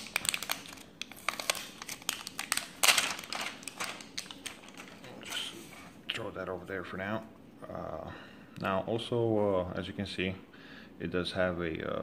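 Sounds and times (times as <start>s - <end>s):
plastic packaging crinkling: 0.0s - 6.0s.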